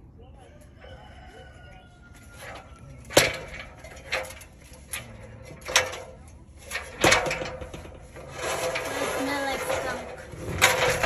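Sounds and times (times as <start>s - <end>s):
metal ladder clanking under feet: 2.4s - 11.0s.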